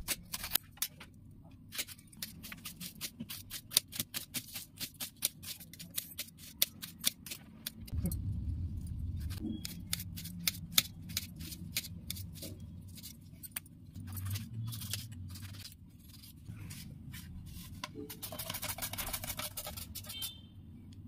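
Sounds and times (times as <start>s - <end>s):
low steady hum: 5.7s - 21.0s.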